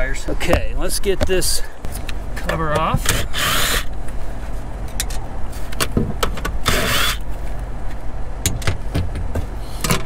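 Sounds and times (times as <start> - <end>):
steady low rumble: 0.0 - 10.0
cordless drill whine: 6.6 - 7.2
handling clicks and knocks: 8.4 - 10.0.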